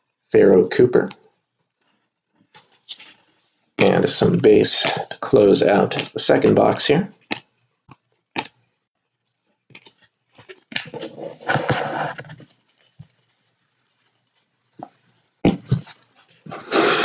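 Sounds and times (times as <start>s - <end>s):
rustling: 8.1s - 17.0s.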